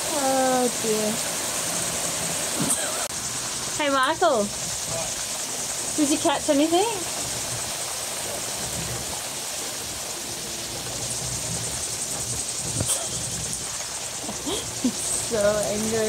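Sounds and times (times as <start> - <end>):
heavy rain falling: 0.0 - 16.0.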